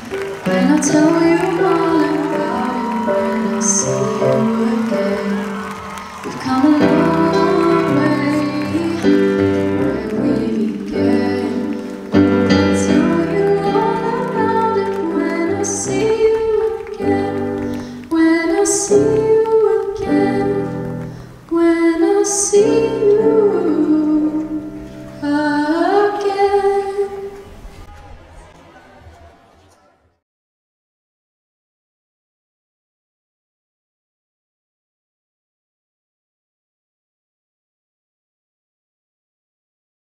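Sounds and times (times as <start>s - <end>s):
person singing: 0.0s - 27.4s.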